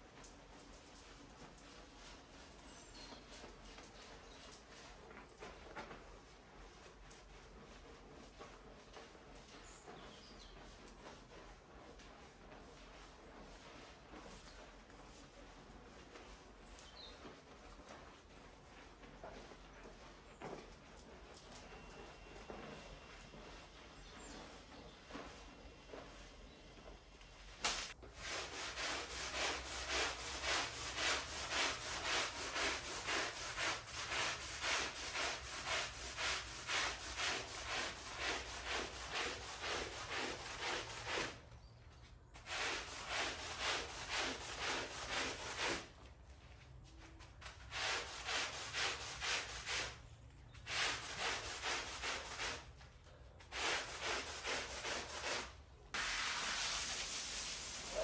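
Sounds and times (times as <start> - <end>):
brush scrubbing wet rug: 0.0 - 26.7, 27.6 - 41.5, 42.3 - 58.0
steady hiss: 53.6 - 58.0.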